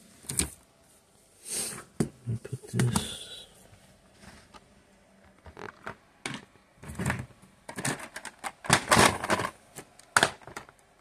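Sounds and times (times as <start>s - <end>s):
things handled on a tabletop: 3.7s - 10.8s.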